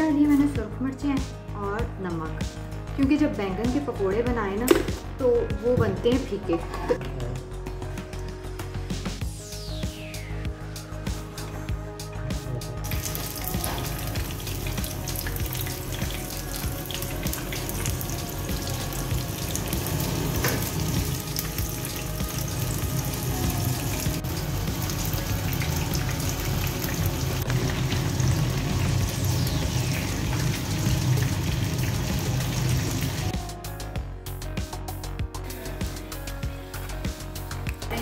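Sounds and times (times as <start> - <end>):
background music: 0.0 - 38.0
food deep-frying in oil: 12.9 - 33.3.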